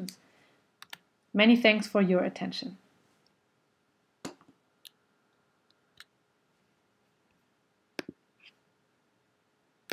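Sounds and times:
computer mouse clicks: 0:00.8 - 0:01.1.

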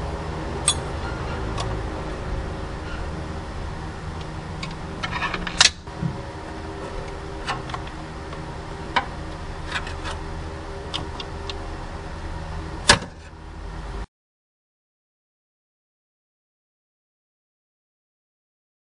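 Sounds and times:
low hum: 0:00.0 - 0:14.1.

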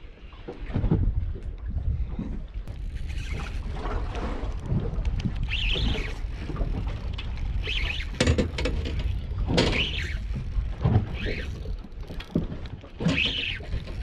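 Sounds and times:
water rumble: 0:00.0 - 0:14.0
wind: 0:00.0 - 0:14.0
fishing reel clicking and winding: 0:02.7 - 0:12.4, 0:13.0 - 0:14.0.

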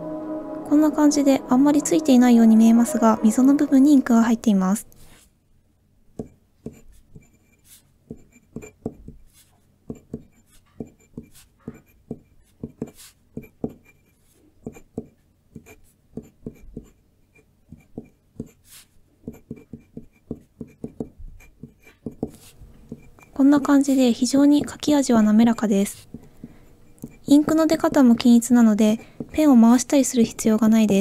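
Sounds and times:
glass pen scratching on paper: 0:06.2 - 0:25.0, 0:25.8 - 0:28.2.

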